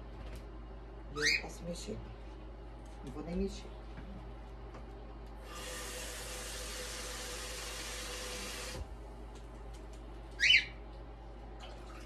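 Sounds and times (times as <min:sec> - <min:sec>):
cockatiel call: 0:10.4 - 0:10.8.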